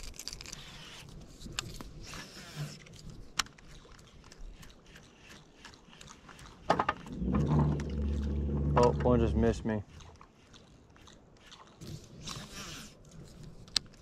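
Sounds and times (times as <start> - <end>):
hands handling fishing tackle: 12.4 - 14.0.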